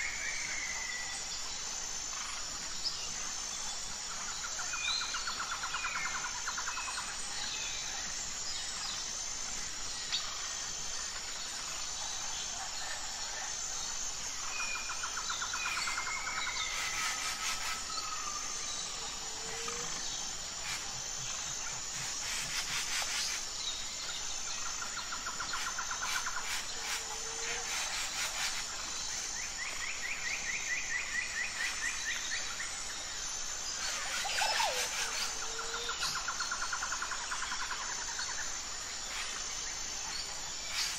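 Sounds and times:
high insect buzz: 0:00.0 - 0:40.9
birds chirping and trilling: 0:33.7 - 0:37.1.

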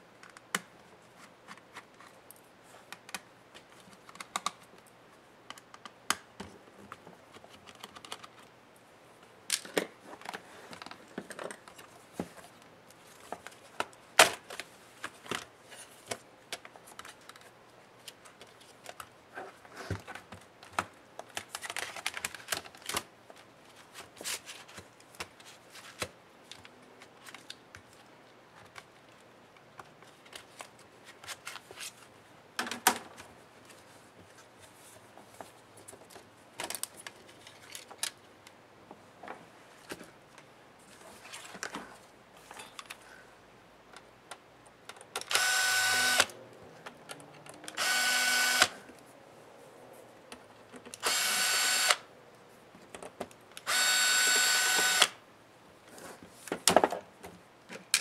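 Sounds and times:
laptop parts clicking and tapping: 0:02.9 - 0:04.8, 0:05.5 - 0:08.5, 0:20.1 - 0:23.1.

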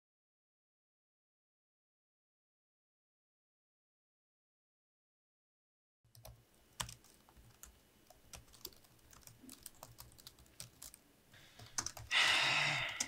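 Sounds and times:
laptop keyboard typing: 0:06.1 - 0:11.0, 0:11.6 - 0:12.2.

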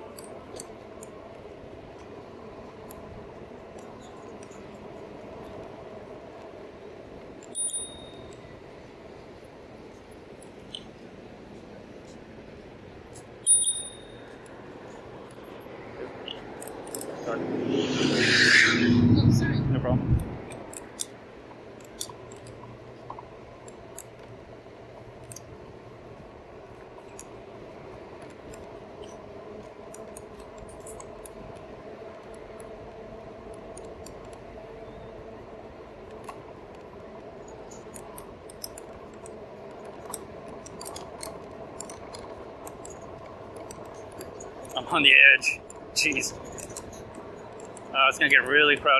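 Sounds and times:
bike clicks and rattles: 0:00.0 - 0:12.3, 0:13.0 - 0:17.4, 0:20.2 - 0:48.9
electric bike motor humming: 0:19.0 - 0:45.0.

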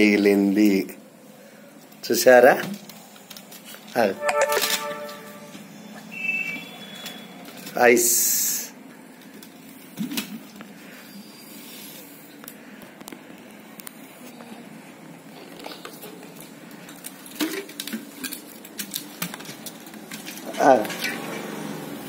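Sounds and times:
wet squishes of ice in water: 0:16.3 - 0:21.7.

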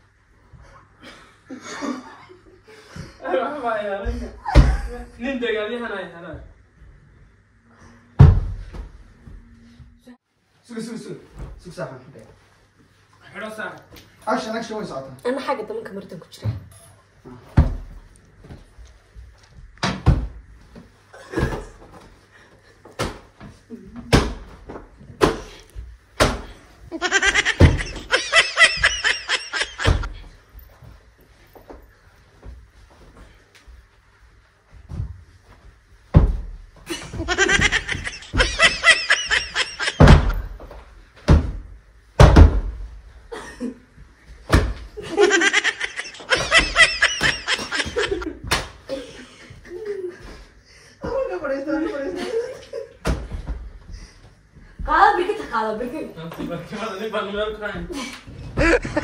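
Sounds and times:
cushions thumping: 0:08.2 - 0:09.0, 0:24.0 - 0:30.2, 0:36.0 - 0:43.1, 0:58.5 - 0:59.0
high rapid laughter: 0:26.9 - 0:30.1, 0:37.0 - 0:40.3, 0:45.0 - 0:48.3, 0:58.6 - 0:59.0.

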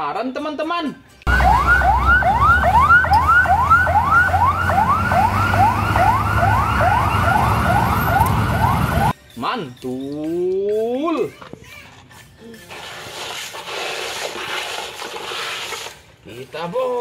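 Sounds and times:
fire engine siren sweeping: 0:01.3 - 0:09.2.

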